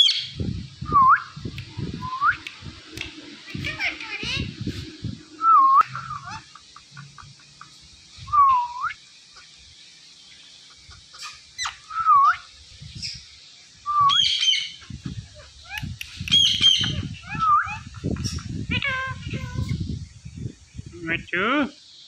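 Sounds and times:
parakeet whistled calls: 11.2 - 13.2, 13.9 - 14.8, 16.3 - 19.7.

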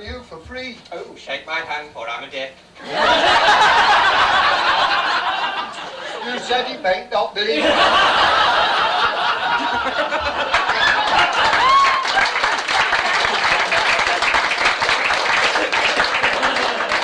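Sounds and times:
audience laughing: 2.8 - 6.6, 7.5 - 17.0
audience applauding: 8.2 - 17.0.

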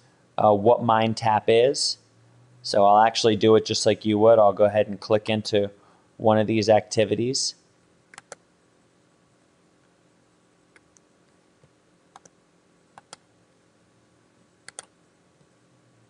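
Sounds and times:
computer mouse clicks: 8.1 - 8.4, 12.1 - 12.4, 13.0 - 13.3, 14.6 - 15.0.

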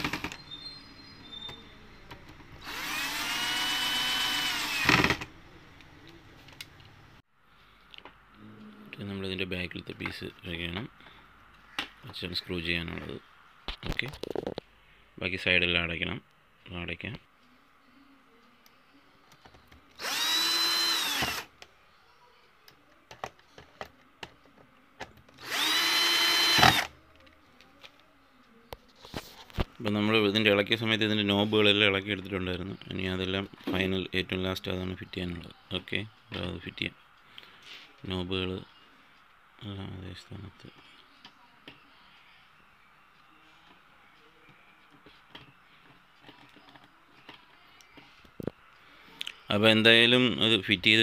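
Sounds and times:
electric screwdriver whining: 2.6 - 5.3, 20.0 - 21.5, 25.4 - 26.9.

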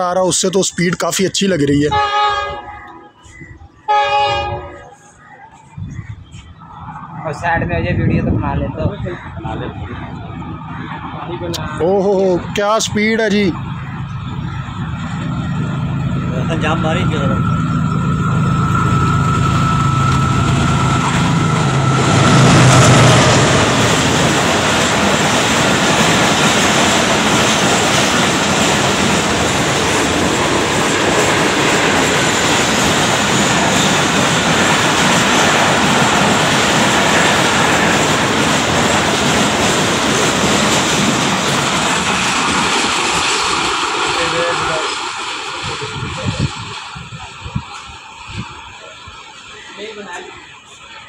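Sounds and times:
locomotive engine drone: 1.6 - 51.0
train wheels clattering on rails: 20.1 - 48.6.

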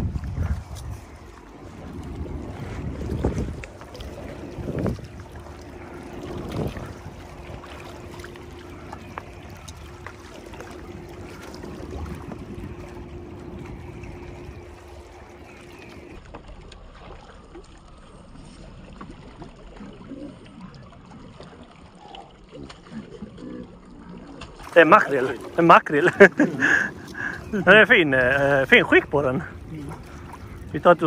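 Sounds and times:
wind on microphone: 0.0 - 10.0, 10.6 - 15.3
steady hum: 0.0 - 16.2
water trickling and splashing: 0.0 - 31.0
waves lapping against rocks: 0.0 - 31.0.

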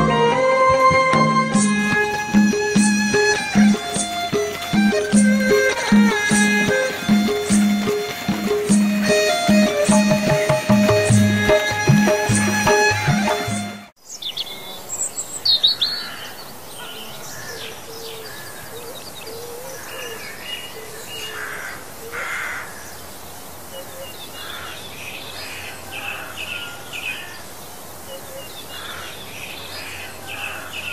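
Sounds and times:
birds chirping: 0.0 - 23.2
faint outdoor hiss: 0.0 - 30.9.

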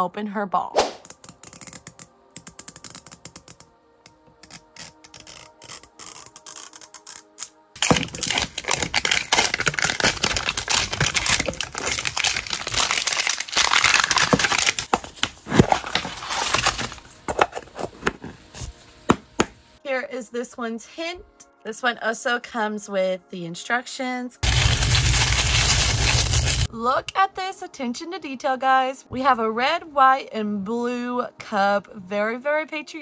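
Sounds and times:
plastic foil crinkling and tearing: 4.6 - 17.8, 24.4 - 26.7.

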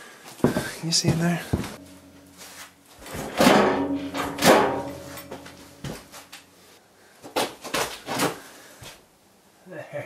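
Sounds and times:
metal scraping: 1.6 - 6.4.

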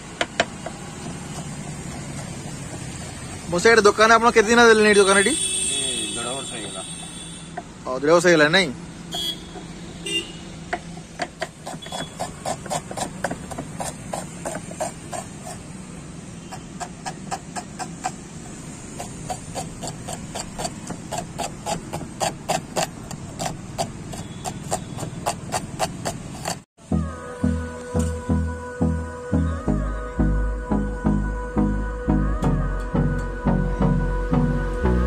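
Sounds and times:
knife chopping on wooden board: 0.2 - 3.2, 10.7 - 15.7, 16.4 - 26.6.

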